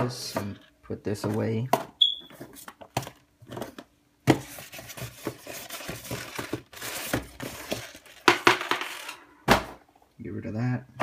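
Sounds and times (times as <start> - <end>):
packaging rustling and scraping: 2.2 - 9.3.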